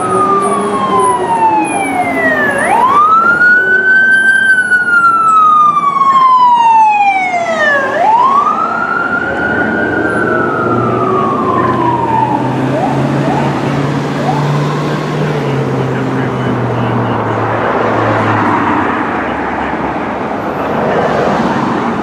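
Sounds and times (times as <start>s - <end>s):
ambulance siren wailing: 0.0s - 22.0s.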